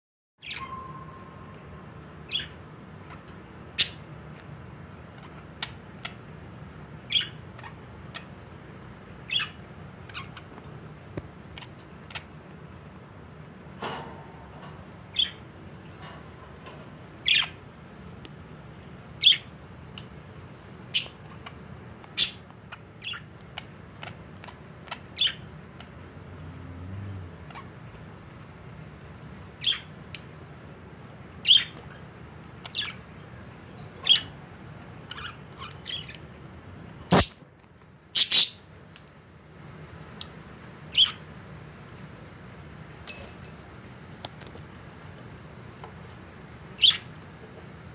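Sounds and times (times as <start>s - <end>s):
budgerigars chirping: 7.1s - 8.3s, 9.3s - 10.4s, 22.2s - 22.4s, 23.0s - 24.2s, 24.8s - 25.5s, 29.6s - 29.9s, 32.6s - 33.0s, 35.1s - 36.2s, 38.2s - 38.6s, 40.9s - 41.2s, 46.8s - 47.1s.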